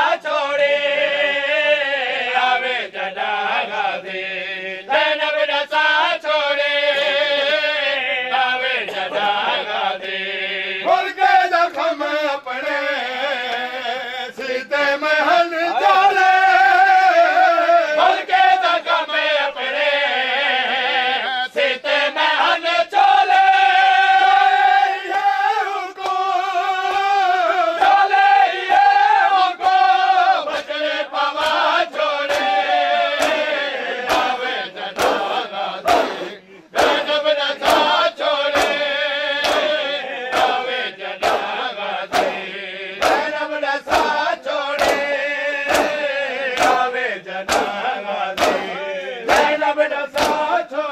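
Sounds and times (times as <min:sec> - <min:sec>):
men chanting in chorus: 0:00.0 - 0:50.9
hands slapping chests: 0:26.0 - 0:26.2, 0:30.5 - 0:50.6.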